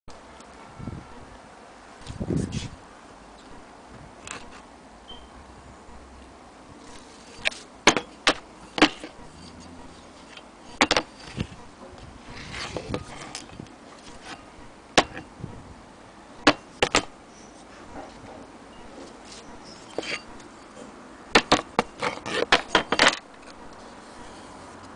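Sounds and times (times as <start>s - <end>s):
rustling scrape: 2.0s - 2.8s, 6.8s - 7.7s, 8.6s - 14.6s, 16.7s - 21.0s, 21.6s - 24.9s.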